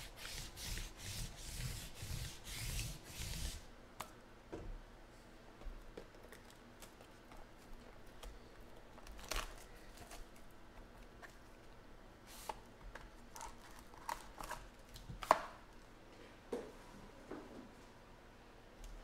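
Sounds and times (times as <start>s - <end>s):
lint roller rasping on table: 0.0s - 3.7s.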